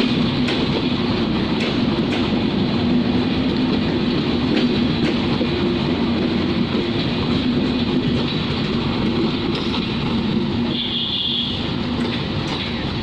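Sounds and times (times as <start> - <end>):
rail joint clicks: 0.0 - 13.0
train wheels rumbling on rails: 0.0 - 13.0.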